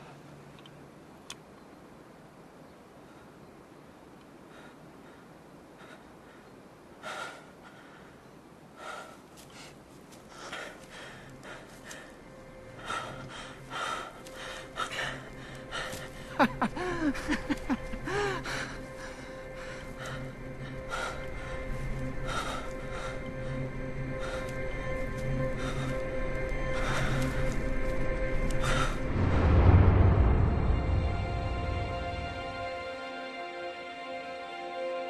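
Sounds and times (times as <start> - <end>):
low drone: 10.3 - 35.0.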